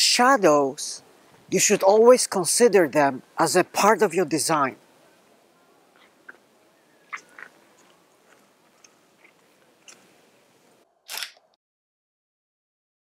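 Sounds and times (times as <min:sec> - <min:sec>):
camera handling clicks and rustles: 0:11.1 - 0:11.5
loud camera shutter click: 0:11.1 - 0:11.5.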